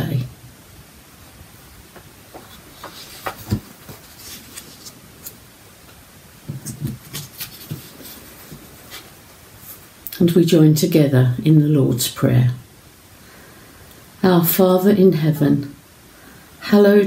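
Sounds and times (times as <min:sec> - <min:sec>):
soft rustles: 0:01.9 - 0:10.0.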